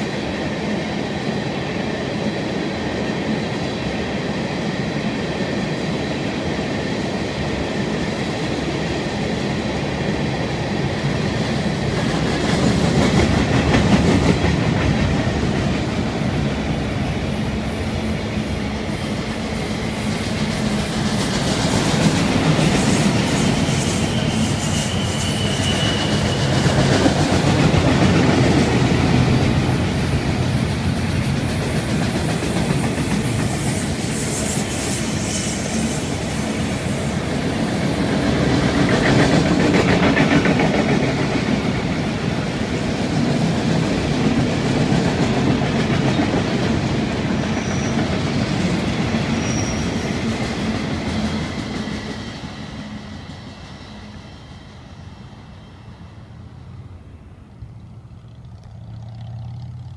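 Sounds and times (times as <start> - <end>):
freight train wheels clattering: 19.1 - 53.3.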